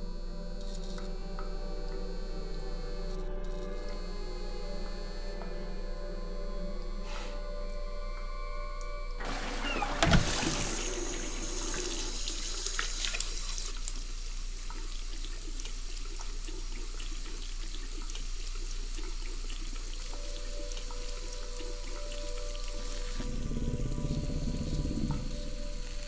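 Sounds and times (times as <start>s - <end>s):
tap water running into sink: 9.2s - 26.0s.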